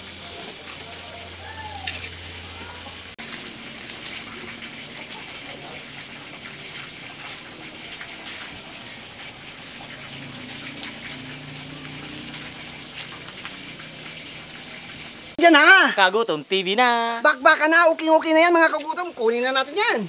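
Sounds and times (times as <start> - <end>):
chicken sizzling over charcoal: 0.0 - 20.0.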